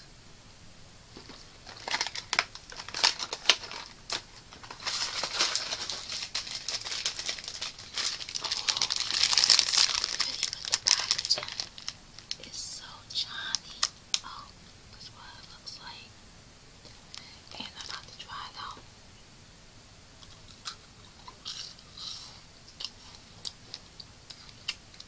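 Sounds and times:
snack packaging crinkling: 1.2 - 12.5.

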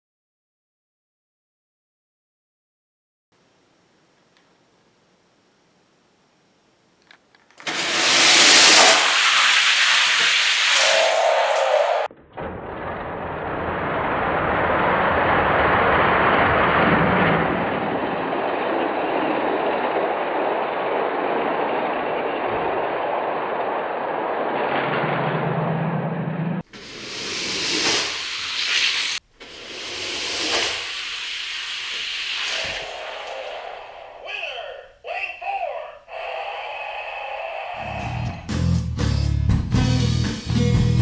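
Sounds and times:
faint click: 4.3 - 4.6
toy cars rolling down plastic track: 7.1 - 12.1, 26.9 - 34.0.

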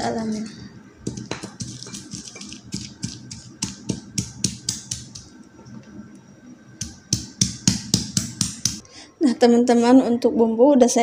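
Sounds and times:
stone pestle pounding in mortar: 1.1 - 5.3, 6.8 - 8.8.

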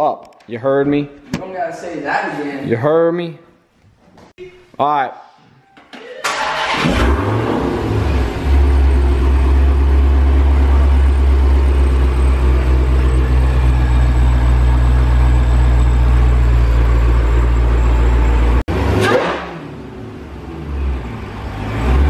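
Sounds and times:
car engine starting and idling: 6.2 - 22.0.

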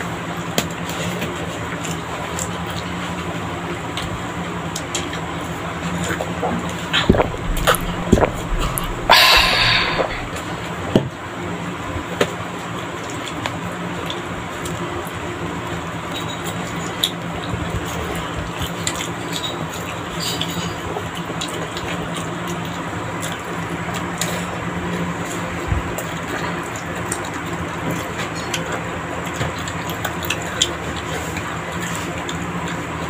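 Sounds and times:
background hum: 5.4 - 10.8
wet chewing: 6.5 - 10.4
short loud burst: 7.2 - 10.5.

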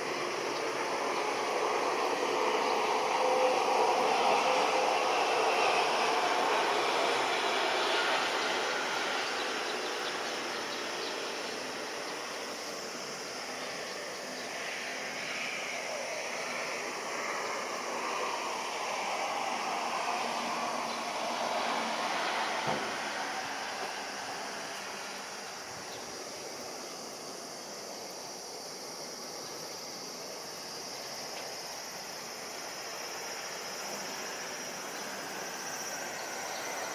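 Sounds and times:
distant outdoor noise: 0.0 - 36.9
high insect buzz: 0.0 - 36.9
distant jet airliner rushing: 0.1 - 27.1.

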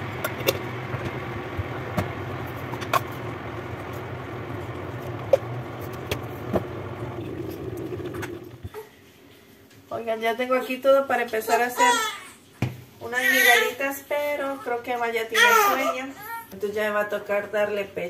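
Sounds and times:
low mechanical hum: 0.0 - 9.9.

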